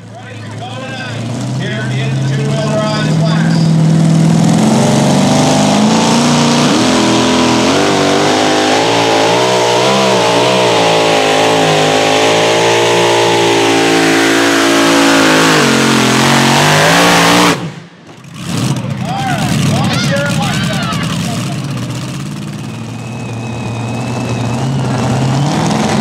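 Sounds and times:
supercharged engine at full throttle: 0.0s - 26.0s.

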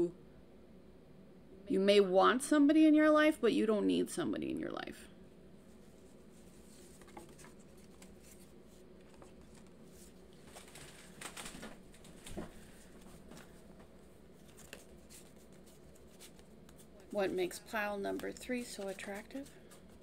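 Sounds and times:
card rustling: 5.7s - 20.0s.

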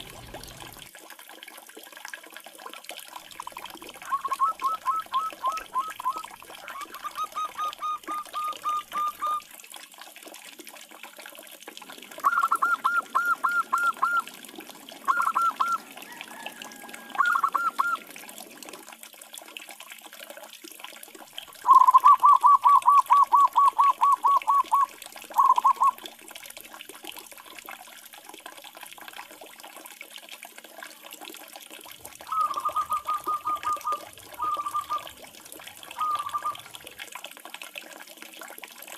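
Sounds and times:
doves cooing: 4.0s - 9.4s, 12.2s - 14.3s, 15.0s - 18.1s, 21.6s - 26.0s, 32.2s - 37.0s.

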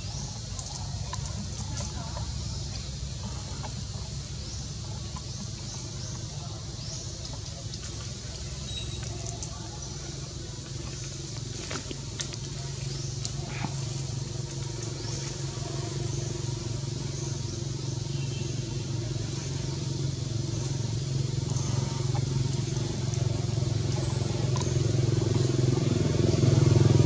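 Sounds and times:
vehicle engine running: 0.0s - 27.0s
faint clicks: 0.4s - 2.9s, 7.2s - 9.8s.

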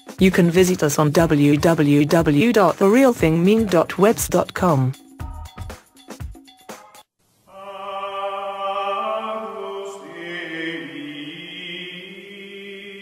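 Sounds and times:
choir holding long chords: 7.5s - 13.0s.

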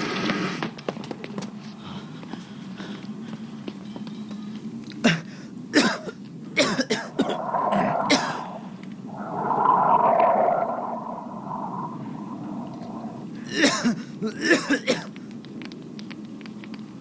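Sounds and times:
raspy hissing gurgle: 6.9s - 13.4s.

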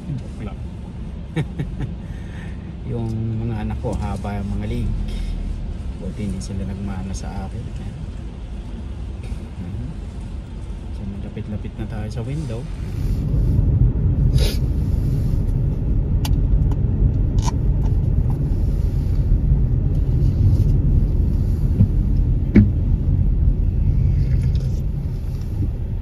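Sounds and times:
car driving rumble inside cabin: 0.0s - 26.0s
short knocks: 21.8s - 22.8s.

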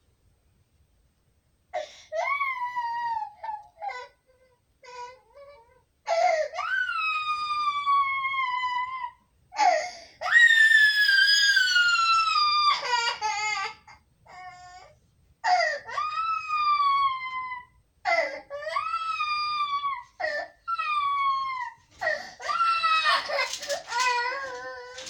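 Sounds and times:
child sobbing: 1.8s - 10.5s, 11.6s - 25.0s
child crying: 15.5s - 25.0s.

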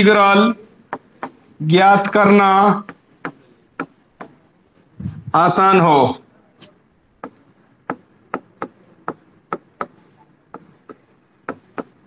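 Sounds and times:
chalk tapping and scraping on blackboard: 0.9s - 2.2s, 2.8s - 4.9s, 6.6s - 12.0s.

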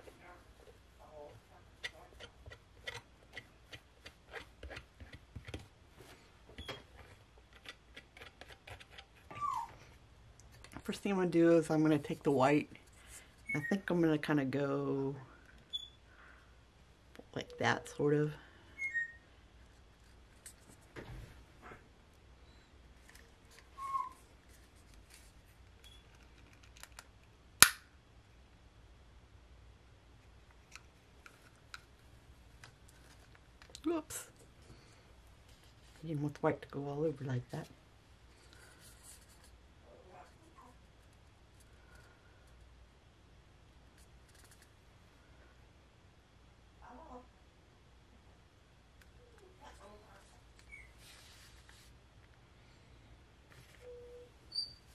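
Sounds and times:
short high squeak: 53.9s - 54.9s.

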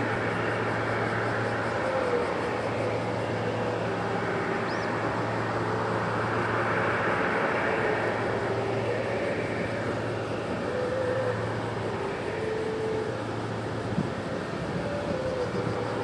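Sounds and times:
distant jet engines rumbling: 0.0s - 16.0s.

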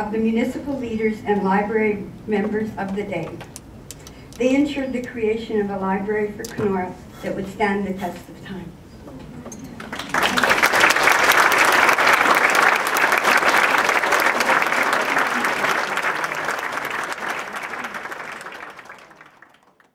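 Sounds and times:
audience applauding: 9.8s - 19.9s.

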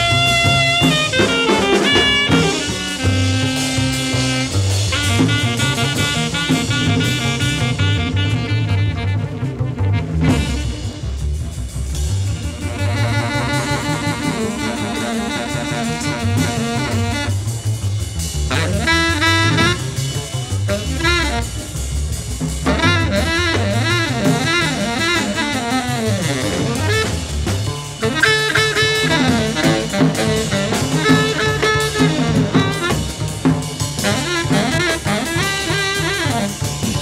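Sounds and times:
alto saxophone: 0.0s - 37.0s
busy drum kit: 0.0s - 37.0s
walking double bass: 0.0s - 37.0s.

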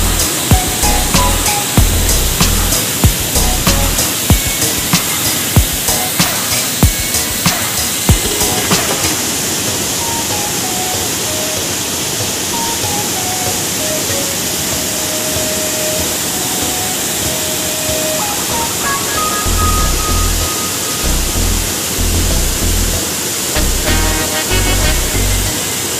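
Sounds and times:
low beat: 0.0s - 9.4s, 19.4s - 23.0s
waterfall rushing into pool: 0.0s - 25.9s
slow melody of held notes: 8.2s - 25.9s.

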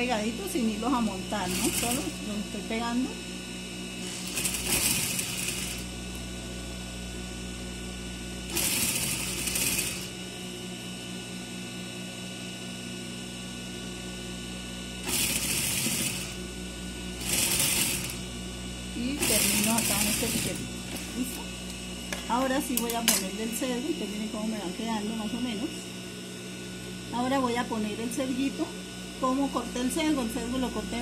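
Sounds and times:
sewing machine motor hum: 0.0s - 2.7s, 4.0s - 7.0s, 7.9s - 10.5s, 14.9s - 25.6s
sewing machine stitching: 1.5s - 2.2s, 4.0s - 5.9s, 8.5s - 10.1s, 15.0s - 16.4s, 17.2s - 18.3s, 19.2s - 21.0s.

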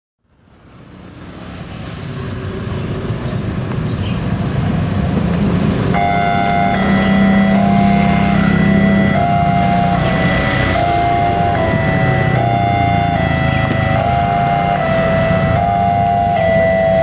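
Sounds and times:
cars and motorbikes passing: 0.3s - 17.0s
level crossing warning siren: 5.8s - 17.0s.

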